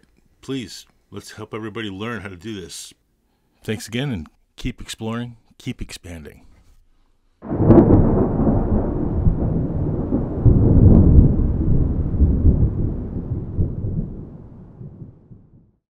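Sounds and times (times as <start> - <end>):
deep rumble of thunder: 7.4 - 15.8.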